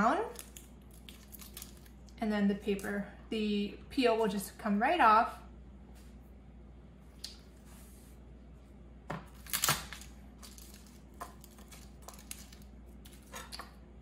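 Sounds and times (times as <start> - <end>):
garlic skins crackling: 0.0 - 3.0, 9.4 - 13.7.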